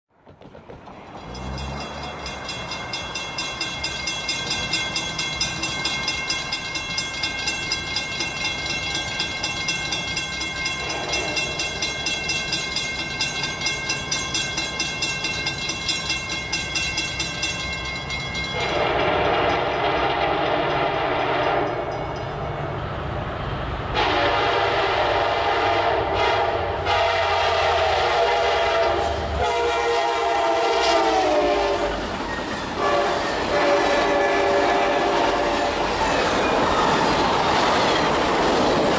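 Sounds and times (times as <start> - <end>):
diesel train rumble: 0.1 - 38.9
crossing bell ringing: 0.9 - 23.0
locomotive air horn blasts: 18.6 - 21.9, 23.9 - 32.1, 32.8 - 36.0.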